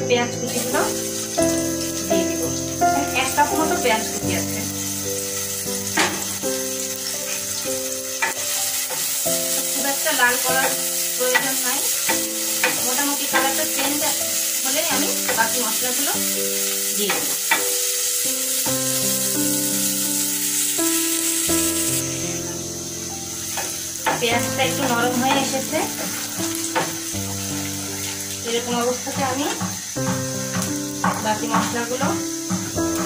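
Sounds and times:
instrumental background music: 0.0 - 33.0
onions sizzling in hot oil: 0.0 - 33.0.

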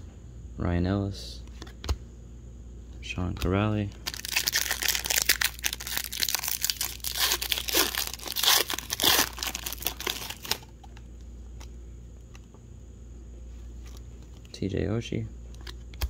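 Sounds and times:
plastic wrapper tearing and crinkling: 4.0 - 10.7.

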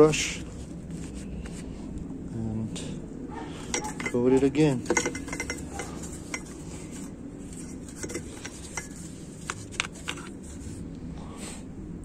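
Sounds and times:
low background hum: 0.0 - 12.0
paintbrush brushing inside metal drum: 3.6 - 10.9.

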